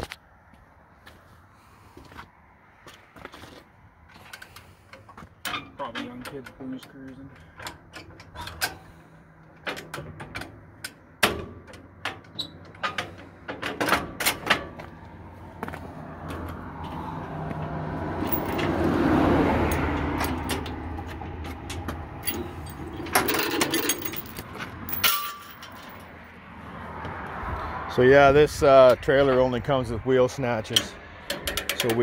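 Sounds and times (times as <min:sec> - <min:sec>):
vehicle passing on road: 0:12.6 - 0:32.0
metal chain clinking and rattling: 0:18.2 - 0:18.8, 0:19.6 - 0:26.2.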